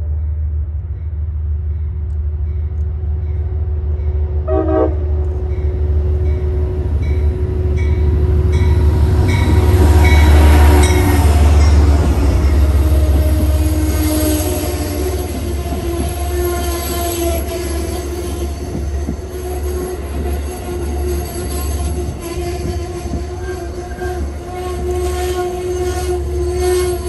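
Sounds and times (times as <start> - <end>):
diesel locomotive rumble: 0.0 - 27.0
train wheels rolling: 1.9 - 27.0
train horn: 4.4 - 27.0
locomotive bell ringing: 5.5 - 24.0.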